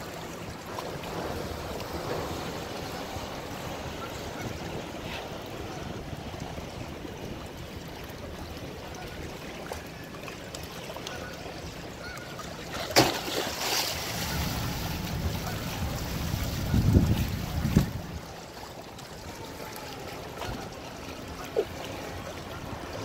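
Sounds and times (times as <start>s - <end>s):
water lapping: 0.0s - 23.0s
wind on microphone: 14.1s - 18.3s.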